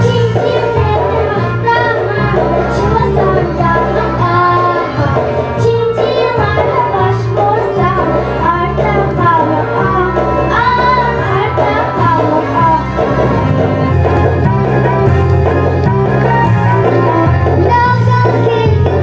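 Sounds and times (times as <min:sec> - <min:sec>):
girls singing into microphones: 0:00.0 - 0:13.5, 0:17.6 - 0:19.0
instrumental accompaniment with bass: 0:00.0 - 0:19.0.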